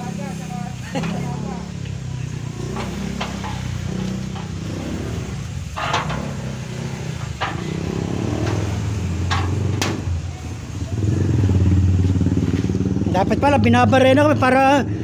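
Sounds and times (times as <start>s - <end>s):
motorcycle engine idling: 0.0s - 15.0s
steel gate clicks and knocks: 5.6s - 6.6s, 7.2s - 10.1s.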